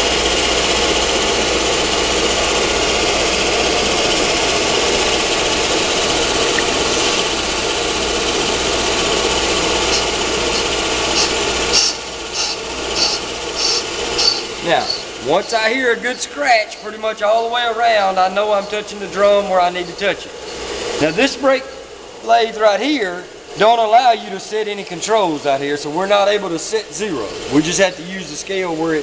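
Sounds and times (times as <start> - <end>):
cutting bit scratching metal drum: 0.0 - 15.7
brake lathe running: 0.0 - 29.0.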